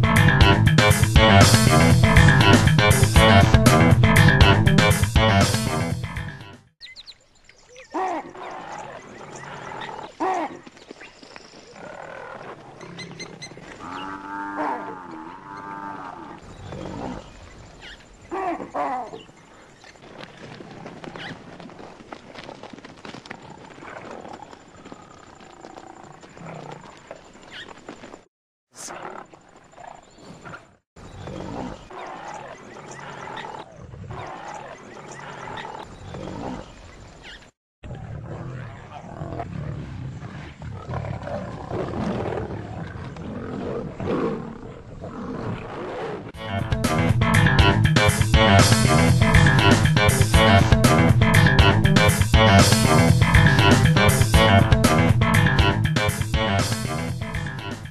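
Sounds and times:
lions growling: 0:08.3 - 0:10.5, 0:11.7 - 0:17.4, 0:28.8 - 0:36.8, 0:37.9 - 0:46.4
buffalo bellowing in distress: 0:13.8 - 0:16.4.

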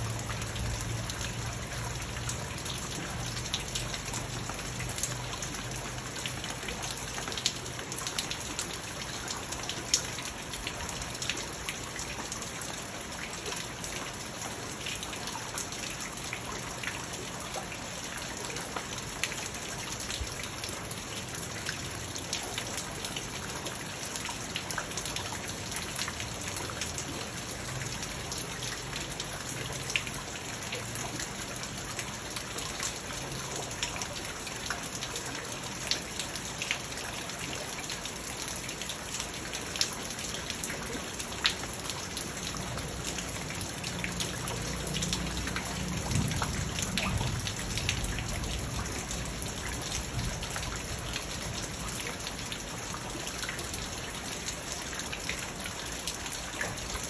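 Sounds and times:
rain falling on pond: 0:00.0 - 0:57.0.

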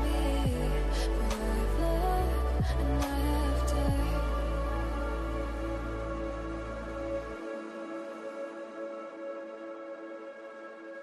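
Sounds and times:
low bass layer: 0:00.0 - 0:07.6
sustained music chords: 0:00.0 - 0:10.1.

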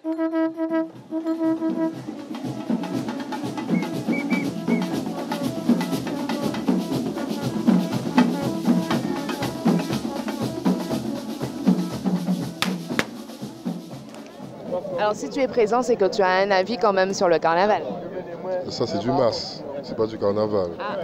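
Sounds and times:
street band drumming: 0:00.9 - 0:14.7
sharp crack: 0:12.6 - 0:13.3.

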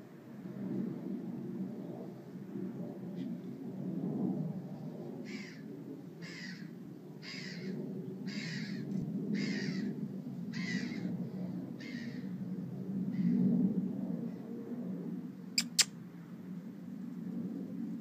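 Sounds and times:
kitten meowing: 0:15.6 - 0:15.9.

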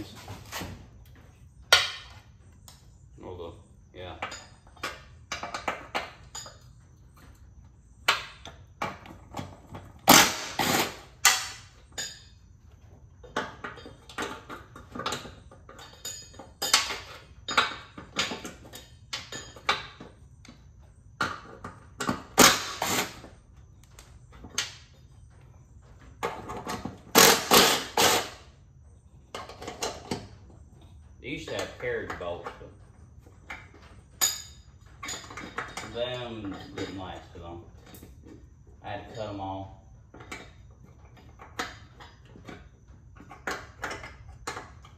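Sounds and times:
hand tools clanking on metal: 0:04.0 - 0:07.3, 0:08.1 - 0:12.4, 0:13.2 - 0:20.3, 0:29.3 - 0:44.9.

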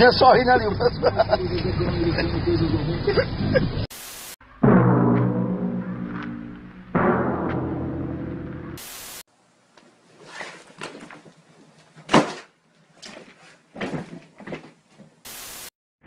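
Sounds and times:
short bursts of hiss: 0:08.8 - 0:09.2, 0:15.3 - 0:15.7.

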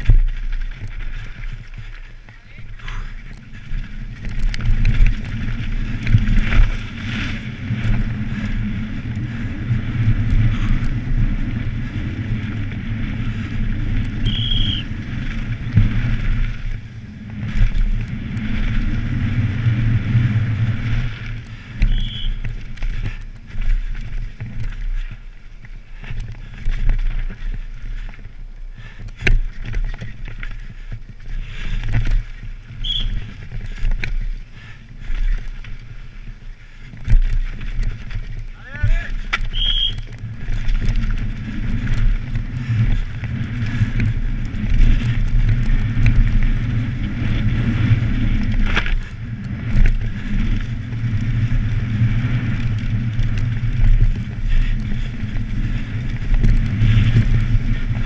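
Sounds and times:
bike knocks and rattles: 0:00.0 - 0:58.0
tyres rumbling over dirt: 0:00.0 - 0:58.0
wind rushing over microphone: 0:00.0 - 0:58.0.

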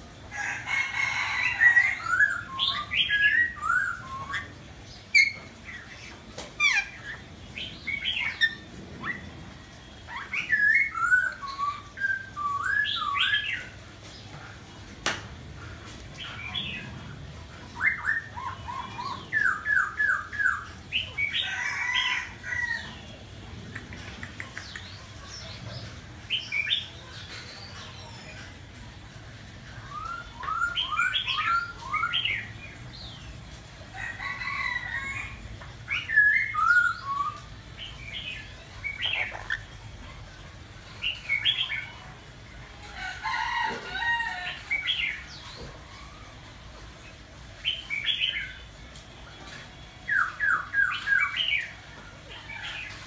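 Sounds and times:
parrot squawks: 0:39.0 - 0:39.8.

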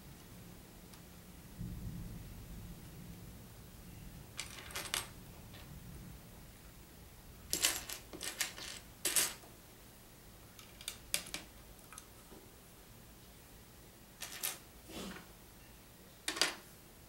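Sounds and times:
plastic toy bricks clicking and rattling: 0:10.6 - 0:12.0.

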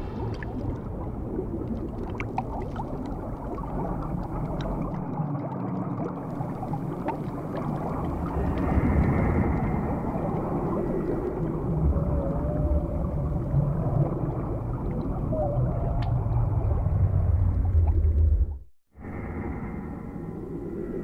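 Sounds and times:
muffled underwater wash: 0:00.0 - 0:21.0.

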